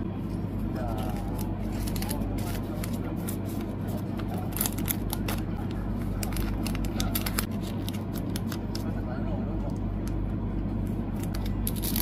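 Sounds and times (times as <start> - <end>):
low steady hum: 0.0 - 12.0
plastic sleeves crinkling: 0.9 - 8.9.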